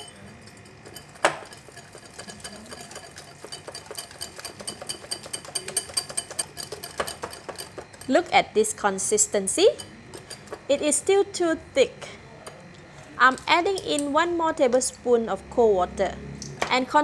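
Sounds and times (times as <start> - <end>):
whisk clicking against glass bowl: 0.0 - 8.2.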